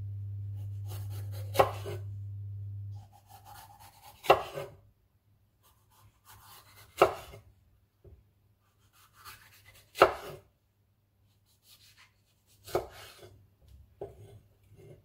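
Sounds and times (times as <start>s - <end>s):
knife cutting pepper: 0.6s - 2.1s, 3.0s - 4.8s, 5.6s - 7.4s, 8.6s - 10.4s, 11.3s - 13.3s.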